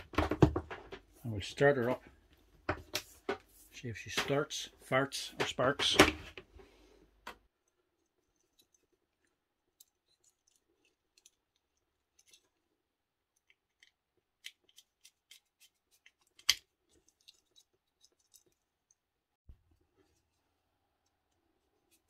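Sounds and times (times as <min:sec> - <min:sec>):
plastic plug parts clicking: 0:13.3 - 0:18.6.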